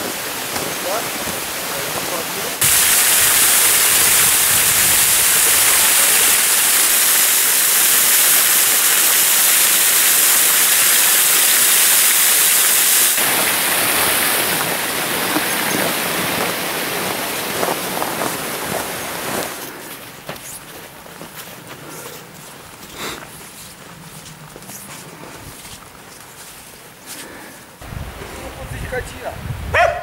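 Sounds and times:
waterfall rushing over a weir: 0.0s - 19.6s.

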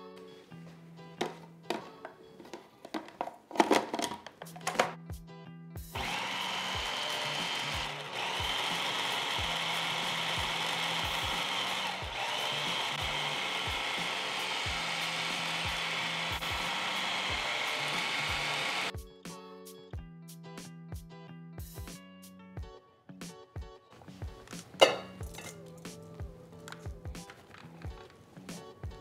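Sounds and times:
food processor motor whirring: 6.0s - 18.9s.

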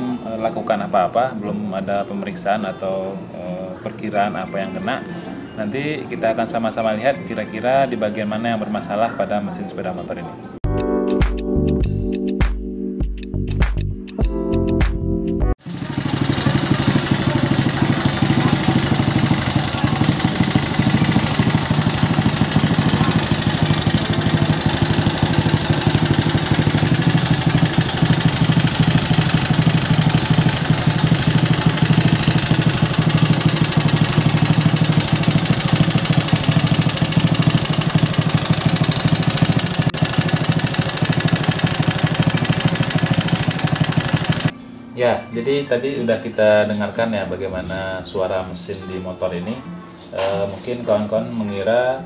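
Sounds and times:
motorcycle engine idling: 15.6s - 44.5s.

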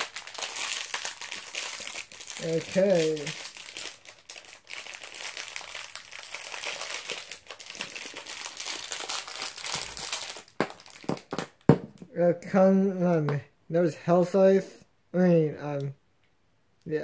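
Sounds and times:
plastic bag crinkling: 0.0s - 11.9s.

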